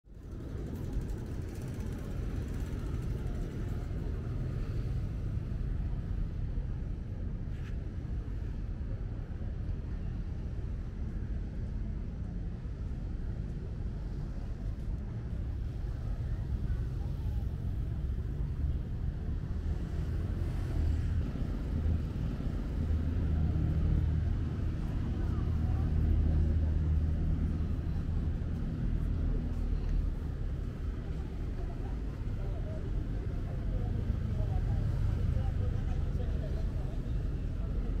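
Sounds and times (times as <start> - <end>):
passing road traffic rumble: 0.1 - 11.0, 12.1 - 38.0.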